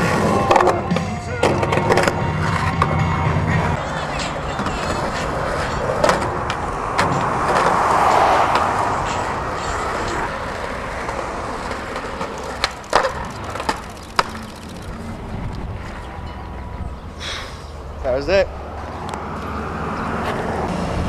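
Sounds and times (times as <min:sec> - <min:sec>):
skateboard wheels rolling on concrete: 0:00.0 - 0:21.0
skateboard clacking on ledge: 0:10.1 - 0:15.1.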